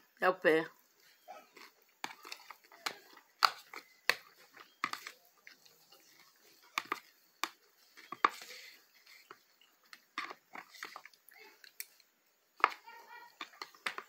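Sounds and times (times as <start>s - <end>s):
chewing crunches: 0.8s - 12.1s
fork in plastic bowl: 1.5s - 12.0s.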